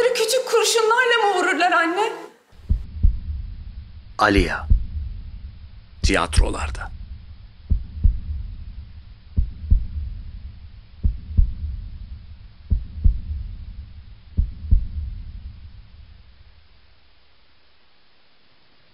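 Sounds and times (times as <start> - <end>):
heartbeat double thumps: 2.5 - 16.7
low rumble: 2.6 - 16.9.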